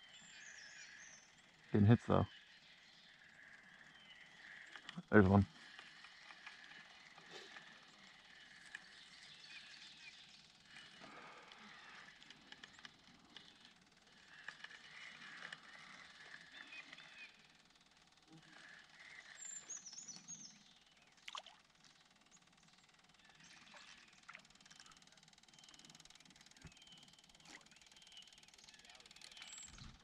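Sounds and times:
small clicks: 0:04.4 - 0:07.7, 0:08.4 - 0:08.9, 0:10.7 - 0:17.0.

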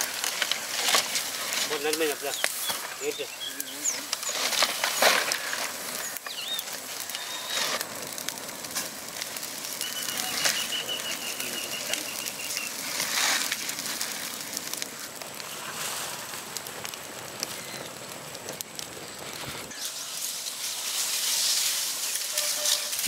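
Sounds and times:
fire crackling: 0:00.0 - 0:23.0
bird chirps: 0:02.3 - 0:05.0, 0:06.0 - 0:07.5, 0:09.8 - 0:12.8.

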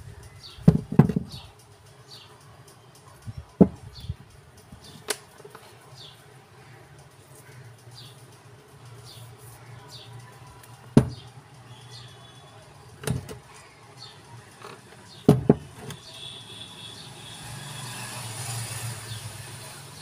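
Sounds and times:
metal parts knocking on workbench: 0:00.6 - 0:01.4, 0:15.3 - 0:16.0.

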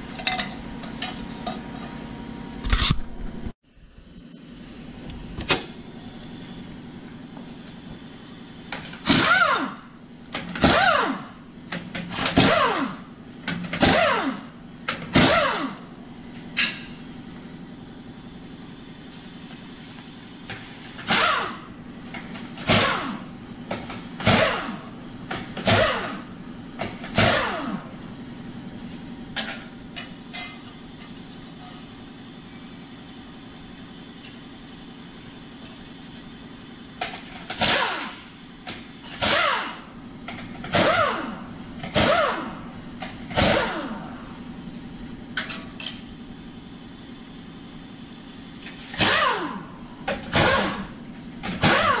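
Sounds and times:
steady low hum: 0:00.0 - 0:10.6
air impact wrench bursts: 0:06.8 - 0:11.4, 0:12.1 - 0:13.1, 0:13.8 - 0:14.5, 0:15.1 - 0:15.9, 0:17.5 - 0:21.8, 0:22.5 - 0:23.4, 0:24.2 - 0:26.4, 0:27.1 - 0:27.8, 0:29.5 - 0:42.7, 0:43.3 - 0:44.2, 0:45.4 - 0:52.0.

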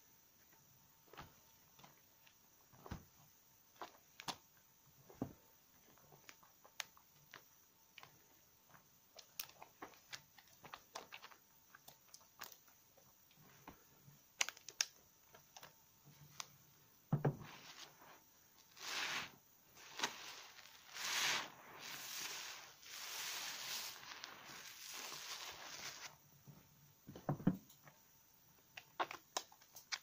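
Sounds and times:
sponge squelching in suds: 0:17.5 - 0:26.1
soap lather crackling: 0:17.6 - 0:26.1.

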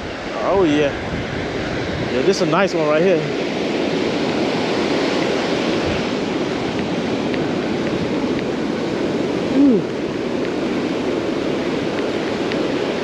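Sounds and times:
waves breaking on beach: 0:00.0 - 0:13.0
low vocal sound: 0:09.5 - 0:10.0.

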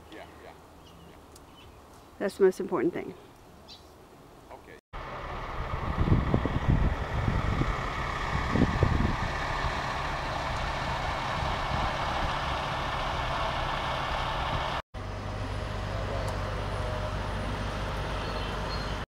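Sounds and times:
diesel engines rumbling: 0:04.6 - 0:19.0
low engine hum: 0:05.0 - 0:19.0.

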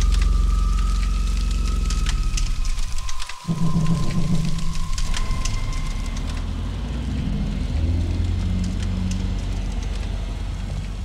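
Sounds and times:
car engine rumbling: 0:01.3 - 0:11.0.

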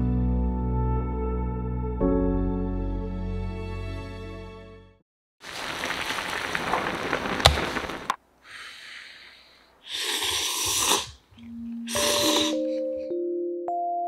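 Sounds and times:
person slurping noodles: 0:08.5 - 0:13.0.

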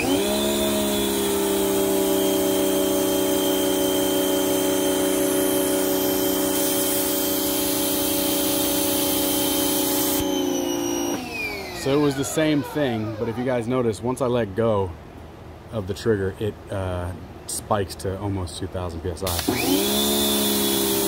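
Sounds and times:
pressure washer motor whine: 0:00.0 - 0:13.8, 0:19.3 - 0:21.0.

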